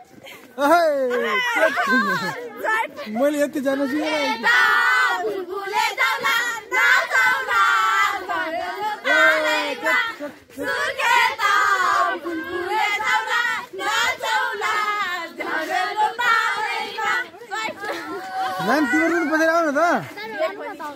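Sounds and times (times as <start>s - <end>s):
girls singing together: 4.0s - 18.7s.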